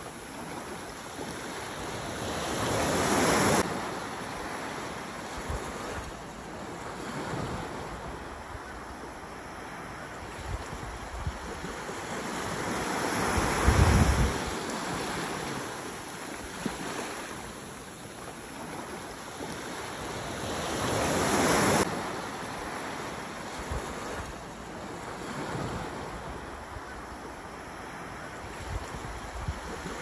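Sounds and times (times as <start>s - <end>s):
small waves breaking on beach: 0.0s - 30.0s
wind rumble on microphone: 13.1s - 15.2s, 28.5s - 30.0s.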